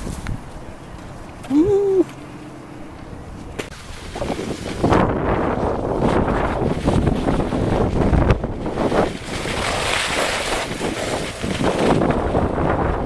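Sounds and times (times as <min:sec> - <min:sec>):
wind buffeting microphone: 0:00.0 - 0:02.1, 0:03.2 - 0:13.0
skis sliding over snow: 0:03.8 - 0:12.8.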